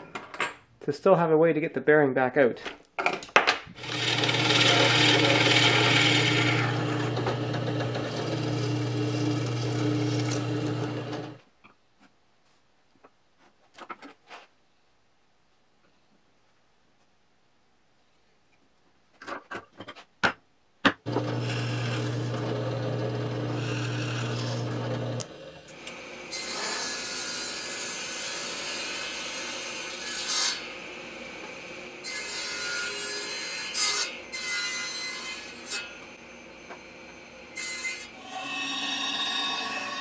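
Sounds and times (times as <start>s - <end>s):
bandsaw cutting plywood: 3.8s - 11.4s, 21.1s - 36.0s, 37.6s - 40.0s
saw cutting plywood: 3.8s - 11.4s, 21.1s - 36.0s, 37.6s - 40.0s
saw motor humming: 3.8s - 11.4s, 21.1s - 25.3s, 38.1s - 40.0s.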